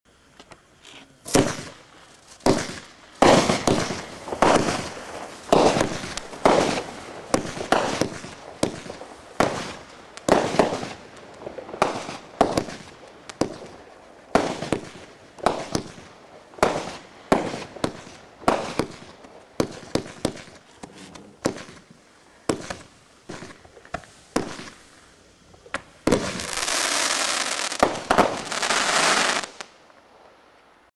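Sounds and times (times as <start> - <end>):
firework crackling: 0.1 - 30.9
firework shots: 1.2 - 30.4.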